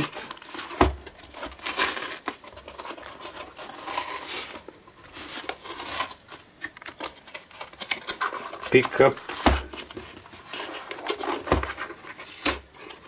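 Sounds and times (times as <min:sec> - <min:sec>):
cardboard and tape tearing: 0:00.0 - 0:13.0.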